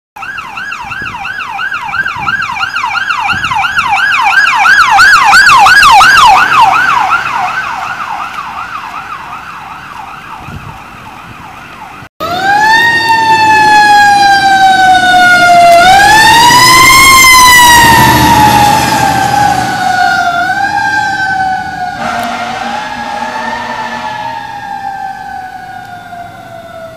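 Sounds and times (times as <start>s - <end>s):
electronic yelp siren: 0.2s - 26.9s
wailing siren: 0.2s - 26.9s
engine rumble: 6.1s - 26.9s.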